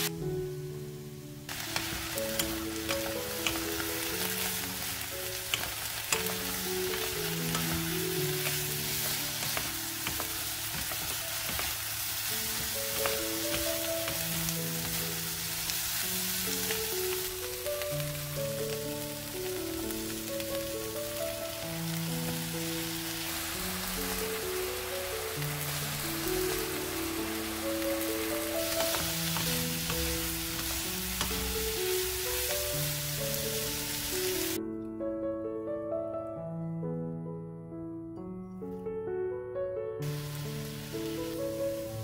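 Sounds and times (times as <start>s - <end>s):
potatoes sizzling in oil: 0.0s - 34.6s, 40.0s - 42.0s
soft background music: 0.0s - 42.0s
spatula taps: 5.4s - 15.0s.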